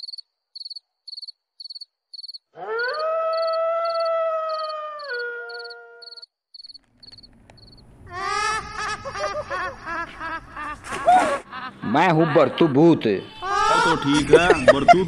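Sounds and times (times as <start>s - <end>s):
crickets chirping: 0.0s - 7.9s
eerie howl: 2.6s - 6.1s.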